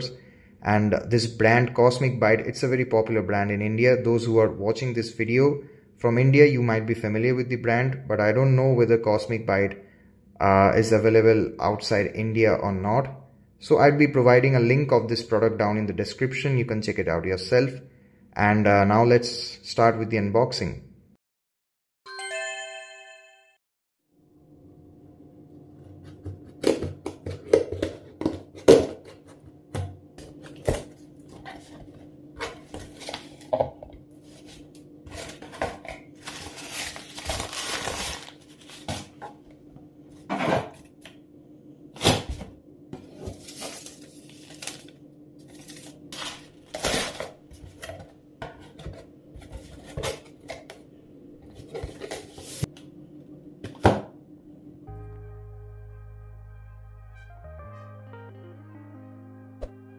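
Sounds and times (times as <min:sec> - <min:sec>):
faint steady hum: 0:28.0 - 0:56.0
cardboard rustling: 0:30.2 - 0:39.4, 0:43.0 - 0:50.7, 0:51.5 - 0:52.7
packing tape peeling: 0:36.2 - 0:39.2.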